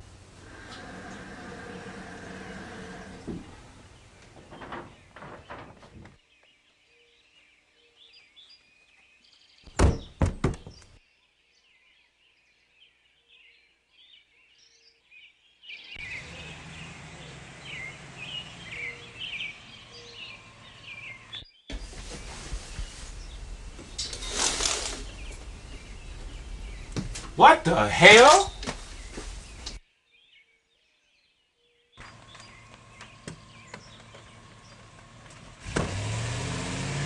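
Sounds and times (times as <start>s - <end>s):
birds chirping: 0.0s - 37.0s
outdoor background noise: 0.0s - 37.0s
loud knocks: 9.7s - 10.8s.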